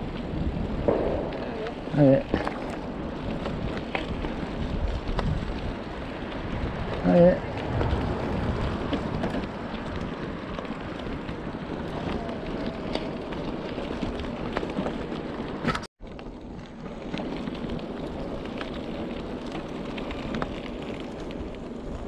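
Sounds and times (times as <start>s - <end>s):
wind on microphone: 0.0s - 14.4s
bicycle tyres rolling: 0.0s - 22.0s.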